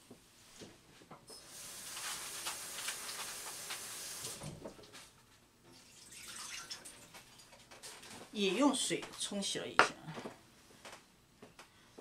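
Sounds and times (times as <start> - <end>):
tap water running: 1.3 - 4.6, 5.6 - 8.1.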